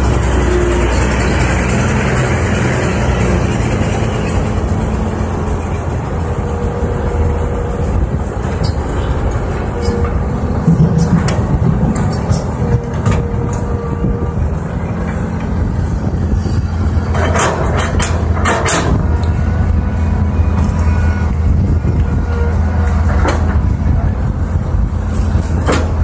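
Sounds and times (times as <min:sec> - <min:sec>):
diesel engines running: 0:00.0 - 0:26.0
sharp clicks and knocks: 0:08.4 - 0:13.7, 0:17.1 - 0:19.4, 0:25.4 - 0:26.0.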